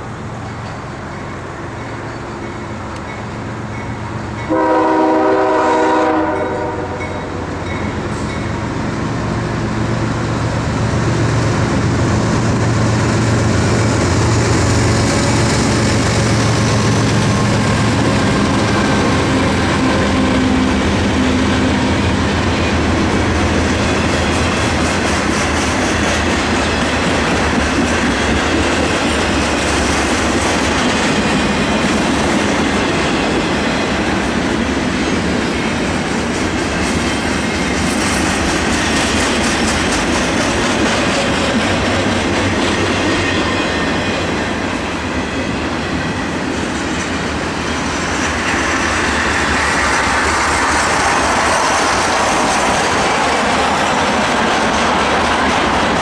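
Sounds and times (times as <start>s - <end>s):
diesel locomotive engines: 0.0s - 56.0s
wheels clacking on rails: 0.0s - 56.0s
train horn blast: 4.4s - 7.4s.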